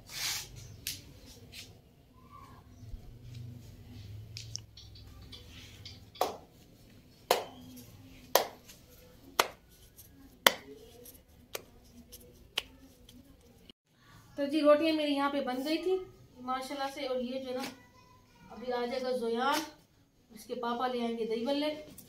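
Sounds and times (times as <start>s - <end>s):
dough slapped between palms: 6.2s - 6.5s, 7.3s - 7.6s, 8.3s - 8.8s, 9.4s - 9.6s, 10.4s - 10.7s.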